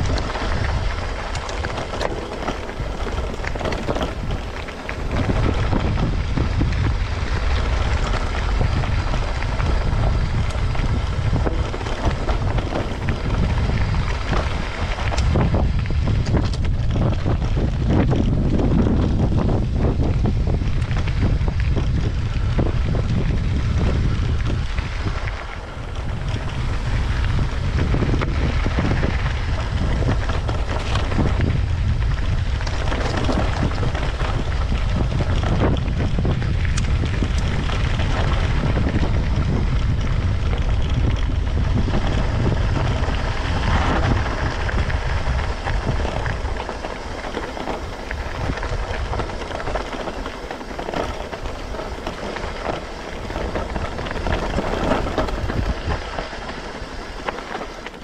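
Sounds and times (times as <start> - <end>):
bike tyres crunching on gravel: 0.0 - 58.0
wind buffeting microphone: 0.0 - 58.0.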